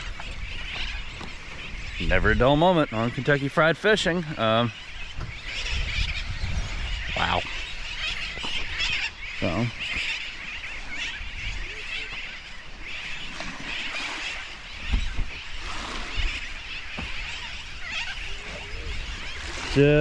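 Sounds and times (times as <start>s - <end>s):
wind rumble on microphone: 0.0s - 3.3s, 4.7s - 10.0s
birds chattering and calling: 0.0s - 20.0s.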